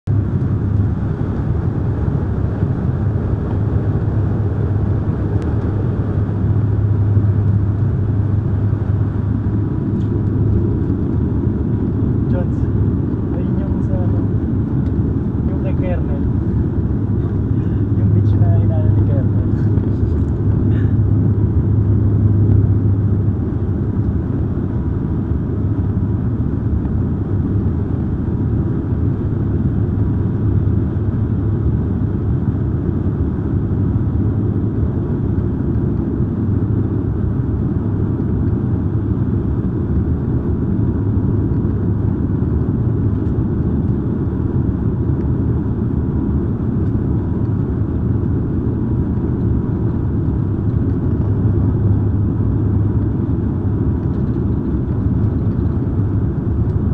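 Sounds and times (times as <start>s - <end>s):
strong low hum: 0.0s - 56.9s
turboprop cabin drone: 0.0s - 56.9s.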